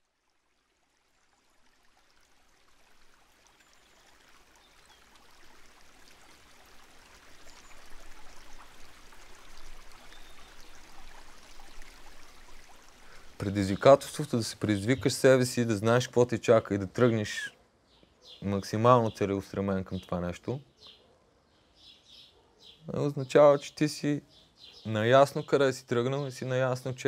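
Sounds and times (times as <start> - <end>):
running water rushing: 0.0 - 17.5.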